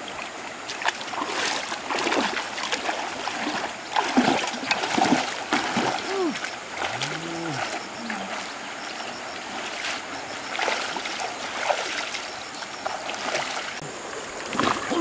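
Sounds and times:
river rushing: 0.0s - 15.0s
water sloshing and splashing: 0.0s - 15.0s.

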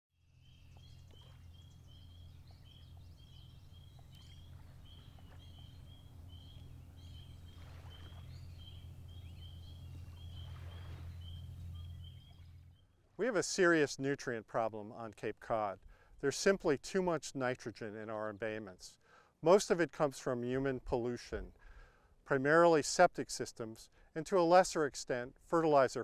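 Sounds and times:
low rumble: 0.4s - 12.8s.

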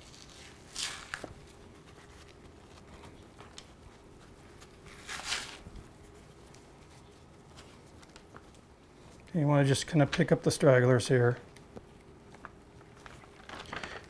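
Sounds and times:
paper towel rustle and tear: 0.0s - 9.2s
faint handling noises: 0.0s - 14.0s.

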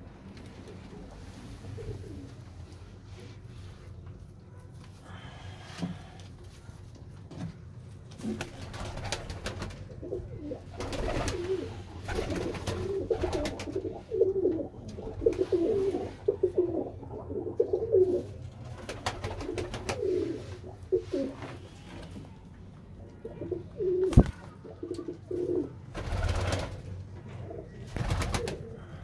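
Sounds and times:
pigeons cooing: 0.6s - 2.5s, 8.2s - 22.0s, 22.9s - 29.0s.

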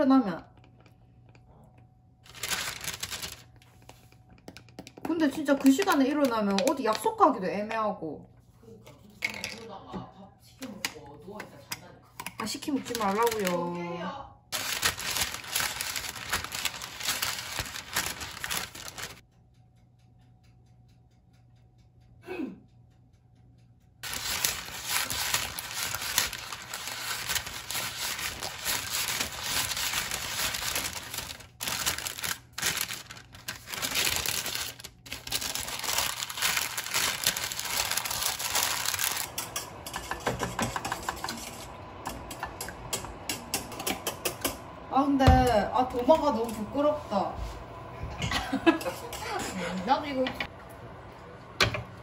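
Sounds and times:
parchment paper crinkling: 2.2s - 4.8s, 12.7s - 13.7s, 14.5s - 19.2s, 24.0s - 39.5s
brush sweeping paper: 24.0s - 35.2s.

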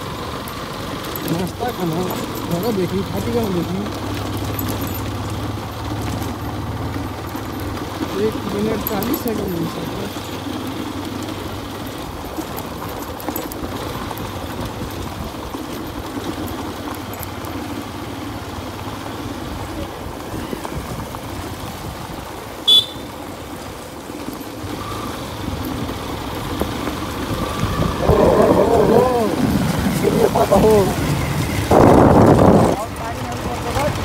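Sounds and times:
motorcycle engine running: 0.0s - 34.0s
tyres on gravel: 0.0s - 34.0s
horn toot: 22.6s - 23.1s.

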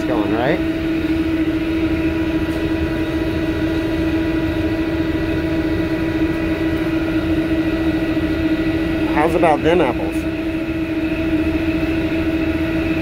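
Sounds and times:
kitchen machinery humming: 0.0s - 13.0s
steady droning tone: 0.0s - 13.0s.

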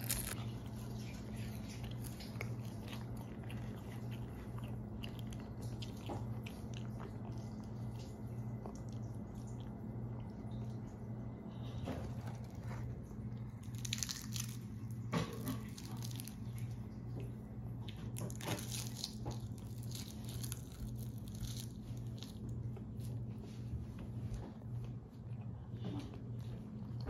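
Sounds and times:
dried seaweed crackling and crunching: 0.0s - 0.4s, 12.2s - 16.8s, 18.1s - 22.6s
steady low hum: 0.0s - 27.0s.

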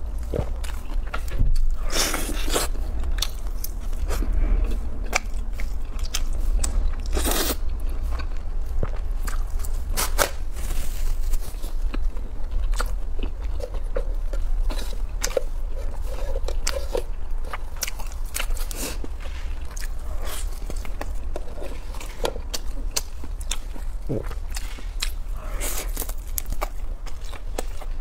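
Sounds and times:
steady low hum: 0.0s - 28.0s
chewing: 0.1s - 28.0s.

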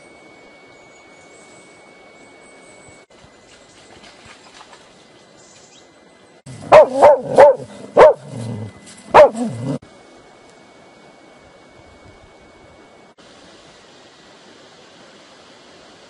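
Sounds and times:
dog barking: 6.6s - 9.8s.

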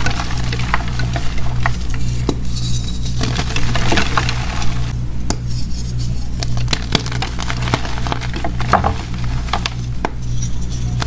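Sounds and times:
chalk crunching and crumbling: 0.0s - 4.9s, 5.5s - 11.0s.

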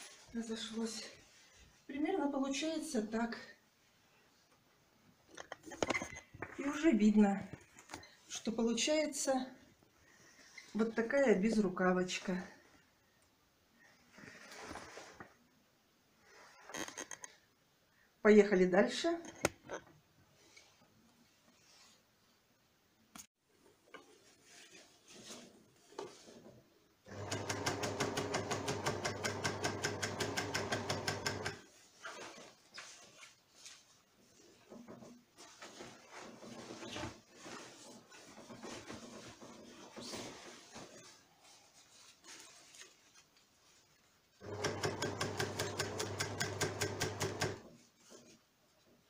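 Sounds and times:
fabric being handled: 0.0s - 1.9s, 14.0s - 15.4s, 20.4s - 22.3s, 23.6s - 26.9s, 31.6s - 44.6s, 47.7s - 49.0s
overlock machine stitching: 27.1s - 31.6s, 44.4s - 47.7s.

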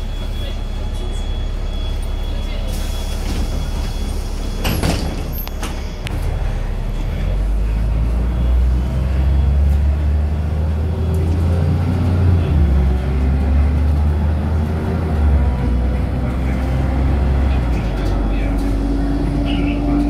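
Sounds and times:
bus engine accelerating: 0.0s - 20.0s
bus door clunk: 2.8s - 6.4s.

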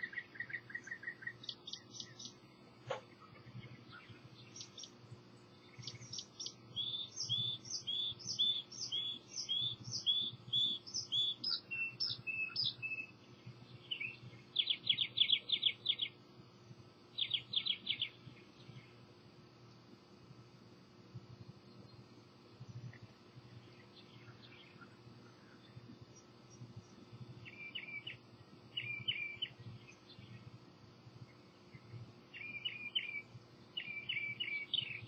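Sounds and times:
bird trills: 0.0s - 5.0s, 5.6s - 13.1s, 13.8s - 16.2s, 17.2s - 18.2s, 27.4s - 28.2s, 28.8s - 30.0s, 32.3s - 35.0s
songbirds singing: 0.0s - 35.0s.

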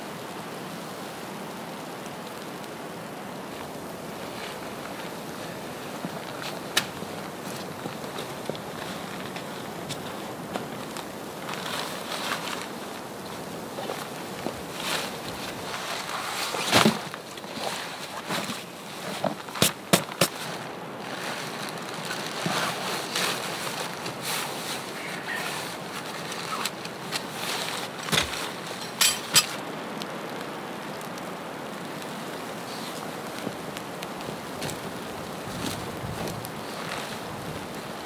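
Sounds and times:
backpack rustling: 3.5s - 29.6s.

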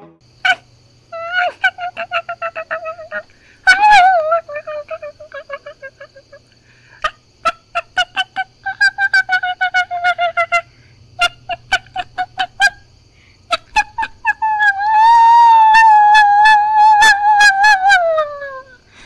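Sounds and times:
person making fox yips: 1.2s - 6.3s, 13.6s - 18.7s.

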